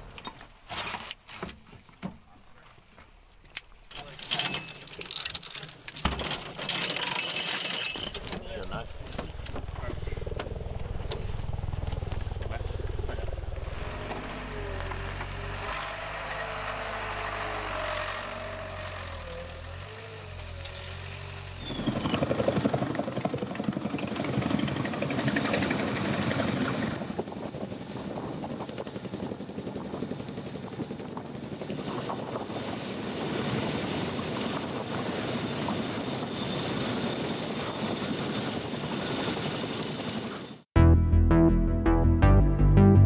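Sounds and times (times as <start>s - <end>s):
helicopter rotor chop: 8.2s - 40.6s
high turbine whine: 8.7s - 22.2s, 25.9s - 40.6s
vehicle engine running: 8.8s - 22.8s.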